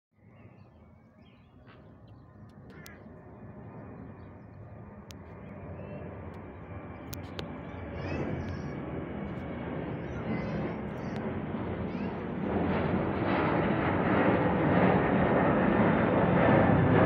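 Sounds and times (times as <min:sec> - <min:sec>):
jet engines roaring: 0:01.8 - 0:17.0.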